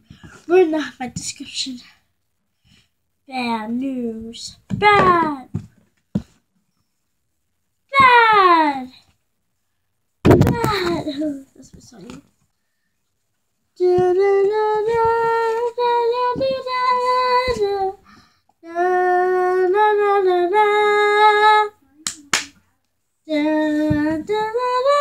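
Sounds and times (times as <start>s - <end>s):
girl singing: 3.3s - 5.7s, 7.9s - 9.1s, 10.3s - 12.2s, 13.8s - 22.5s, 23.2s - 25.0s.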